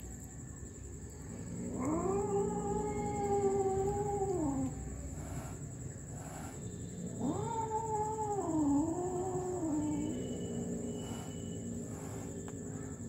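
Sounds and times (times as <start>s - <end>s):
cat meowing: 1.7s - 5.6s, 7.2s - 12.2s.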